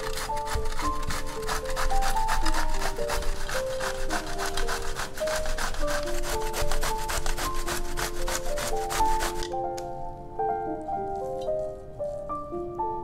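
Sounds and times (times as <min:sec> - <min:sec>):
zucchini rasping on a grater: 0:00.0 - 0:09.6.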